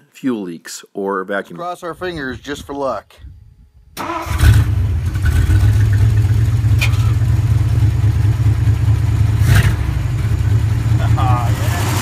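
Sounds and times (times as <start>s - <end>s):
engine starting and running: 4.0s - 12.0s.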